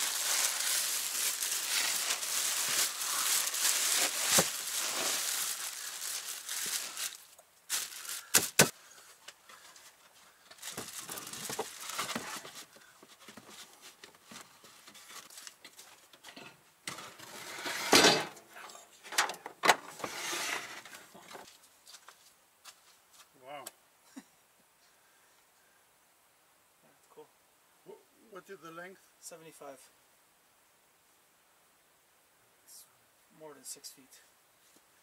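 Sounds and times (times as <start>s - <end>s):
plastic wrapping rustling: 0.0s - 16.2s
knocks and thuds of objects: 8.3s - 8.8s.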